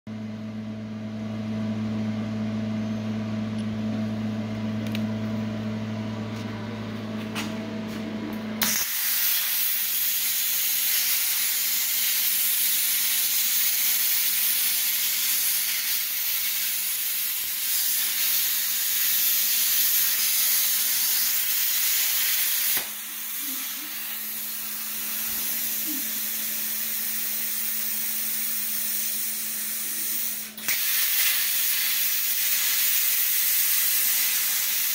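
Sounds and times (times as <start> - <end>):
steady machine hum: 0.1 - 30.7
plasma torch cutting hiss: 8.6 - 34.9.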